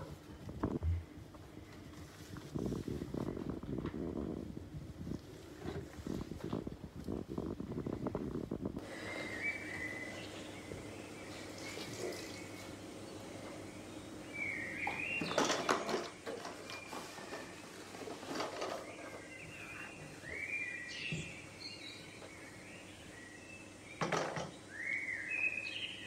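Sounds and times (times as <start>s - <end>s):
cloth wiping a sink: 11.4s - 12.8s.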